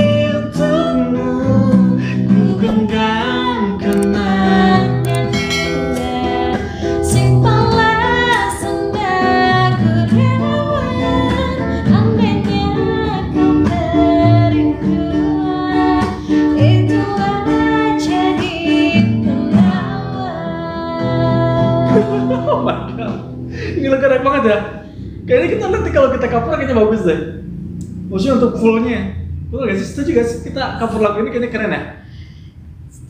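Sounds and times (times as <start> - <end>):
woman singing: 0.0 - 22.8
acoustic guitar strumming: 0.0 - 25.3.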